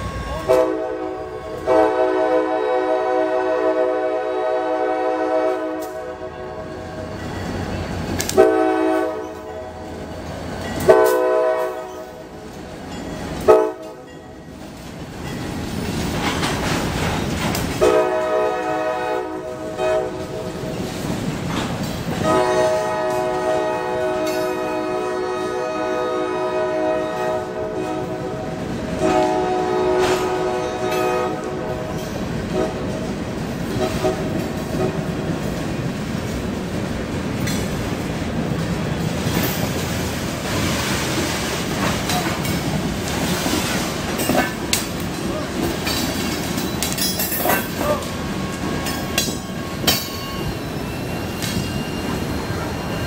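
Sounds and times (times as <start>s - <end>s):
train air horn blasts: 0.0s - 7.1s, 8.2s - 10.1s, 10.8s - 12.3s, 13.4s - 14.1s, 17.8s - 20.7s, 22.2s - 33.0s, 33.7s - 35.1s.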